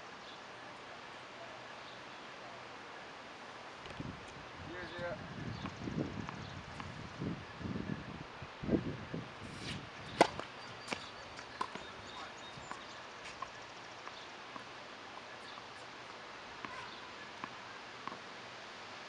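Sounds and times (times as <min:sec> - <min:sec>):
tennis ball bouncing on hard court: 0:09.5 - 0:14.7, 0:16.6 - 0:18.3.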